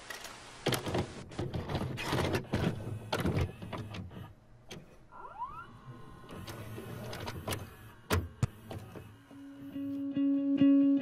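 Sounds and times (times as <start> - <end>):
vcr mechanical clicks and clunks: 0.7 - 4.9, 5.7 - 9.7
tape deck motor whining: 2.0 - 10.3.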